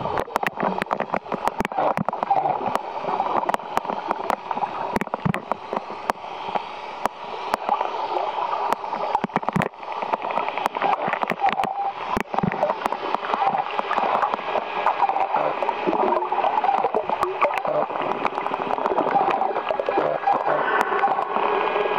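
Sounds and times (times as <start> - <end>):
underwater gurgling and rushing: 0.0 - 21.9
sharp clicks: 0.1 - 7.8, 8.7 - 21.4.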